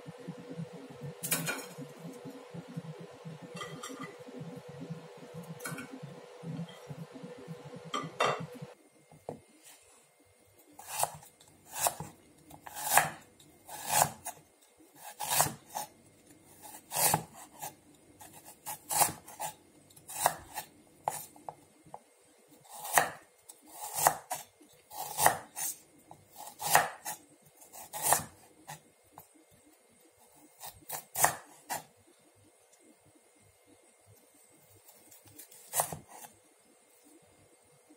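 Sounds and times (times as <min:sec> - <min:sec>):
knife slicing ginger on board: 0:10.8 - 0:14.4, 0:15.0 - 0:15.9, 0:16.6 - 0:21.3, 0:22.7 - 0:28.8, 0:30.6 - 0:31.9, 0:35.2 - 0:36.3.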